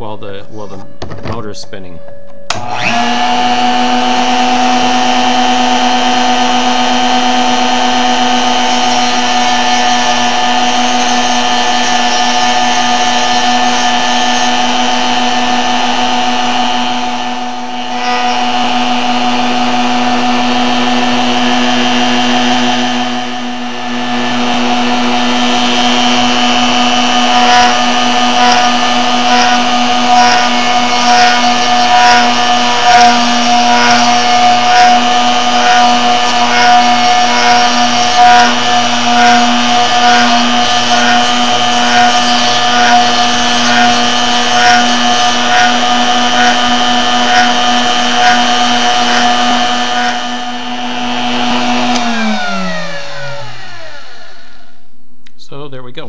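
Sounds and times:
motor whining: 2.5 - 54.9
sanding drums sanding wood: 4.2 - 16.0, 24.6 - 50.5.

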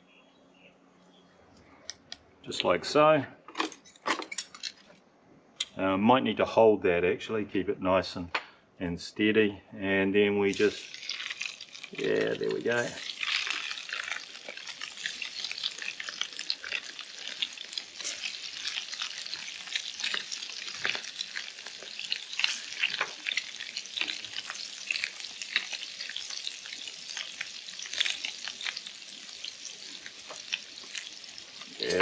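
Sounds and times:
fish frying in hot oil: 10.5 - 32.0.

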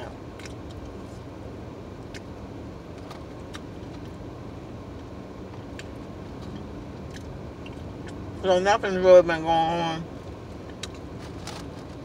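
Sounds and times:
low hum inside car: 0.0 - 12.0
chewing: 3.0 - 4.1, 5.7 - 8.2, 10.6 - 11.7.

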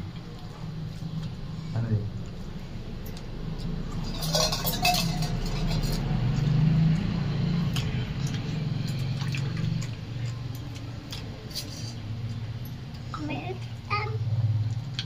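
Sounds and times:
metal clinks: 4.1 - 6.1.

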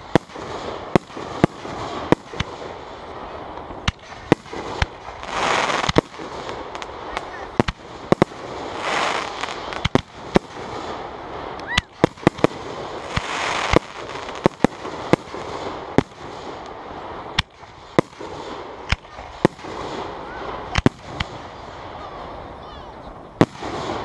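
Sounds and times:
fireworks bursting with sharp bangs: 0.0 - 24.0.

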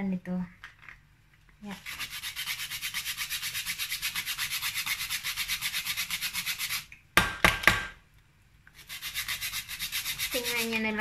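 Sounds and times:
nutmeg grating on hand grater: 1.7 - 6.9, 8.8 - 11.0.

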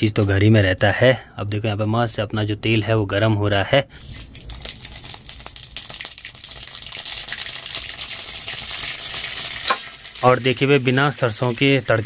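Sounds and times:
seeds sizzling and crackling in hot oil: 4.0 - 12.0.

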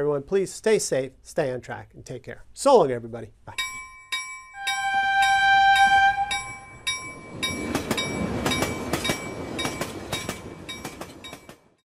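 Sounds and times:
railroad crossing bell ringing: 3.6 - 11.8
train horn: 4.6 - 6.8
train rumbling past: 4.6 - 11.8.

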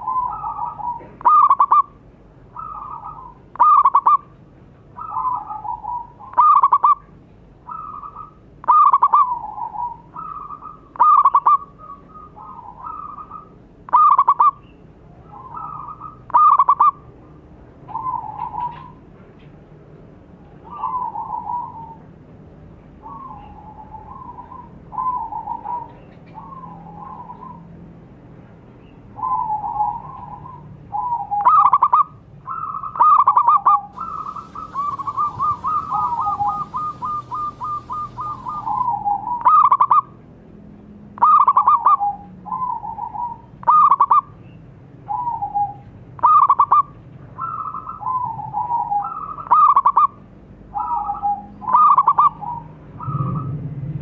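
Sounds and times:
dove cooing: 0.0 - 1.9, 5.0 - 7.1, 15.2 - 17.0, 17.9 - 19.0, 23.0 - 27.5, 29.2 - 40.0.

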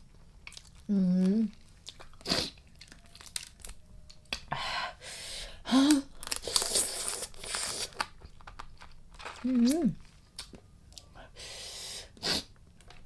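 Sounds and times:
crunching and chewing: 0.1 - 0.9, 1.5 - 4.4, 5.9 - 11.1.

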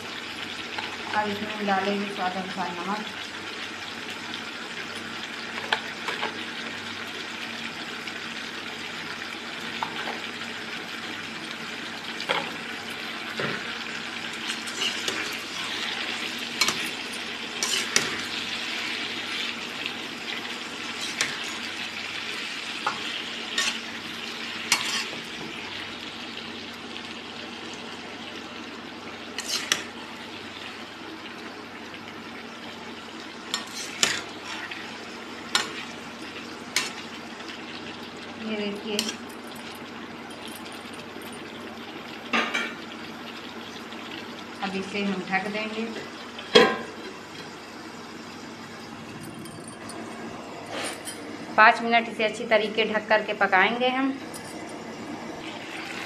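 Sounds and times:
vegetables sizzling in pan: 0.0 - 49.2, 50.2 - 56.0
metal spatula stirring: 14.6 - 18.3, 20.9 - 21.7, 22.9 - 23.9, 24.7 - 25.2, 29.4 - 29.9, 33.6 - 34.8.

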